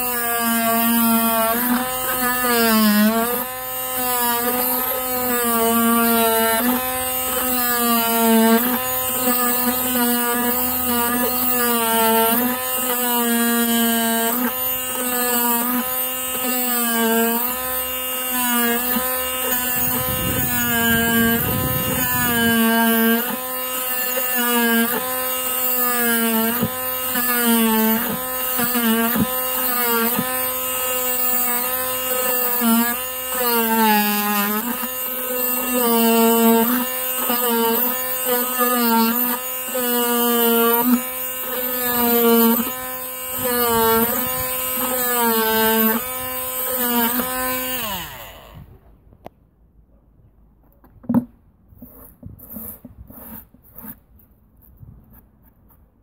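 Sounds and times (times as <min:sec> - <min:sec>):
oscillating multi-tool buzzing: 0:00.0 - 0:48.8
low scraping rumble: 0:19.8 - 0:22.7.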